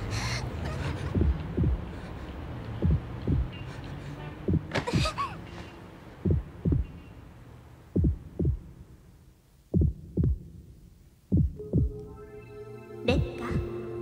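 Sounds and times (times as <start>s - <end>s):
heartbeat thumps: 1.0s - 2.1s, 2.7s - 3.6s, 4.4s - 5.3s, 6.2s - 7.0s, 7.9s - 8.9s, 9.7s - 12.1s, 13.1s - 13.8s.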